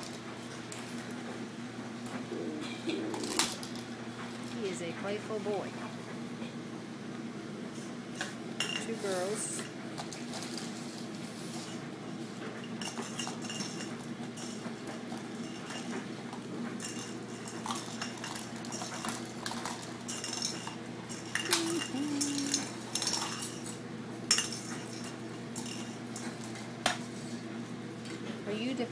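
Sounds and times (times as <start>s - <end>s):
plastic toys clattering on tile: 3.1s - 3.9s, 12.7s - 16.0s, 16.8s - 27.0s.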